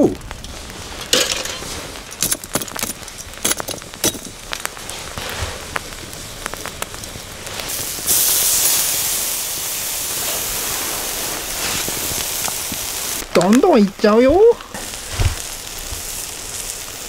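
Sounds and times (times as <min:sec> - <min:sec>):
chicken sizzling on a hot grill: 0:03.0 - 0:17.0.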